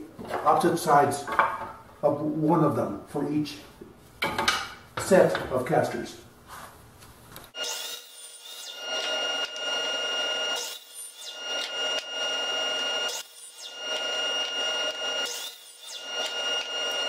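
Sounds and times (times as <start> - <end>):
saw cutting wood: 7.5 - 17.0
miter saw whining: 7.6 - 17.0.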